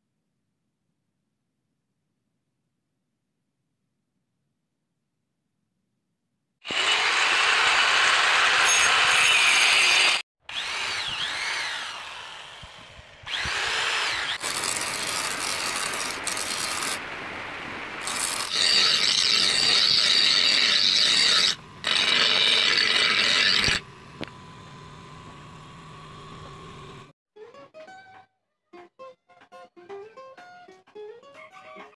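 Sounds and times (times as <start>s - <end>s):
grinder grinding knife blade: 6.6s - 17.0s, 18.0s - 24.4s.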